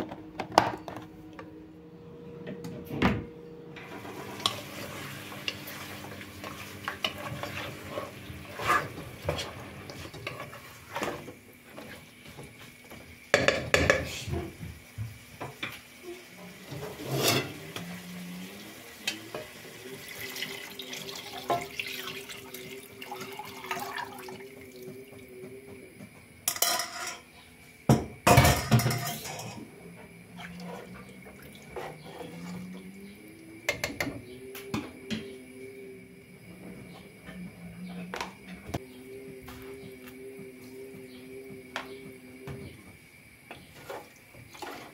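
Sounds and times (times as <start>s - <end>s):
pot and utensil clatter: 16.7s - 17.9s, 26.4s - 27.3s, 27.9s - 29.7s
water poured into a pot: 19.0s - 24.9s.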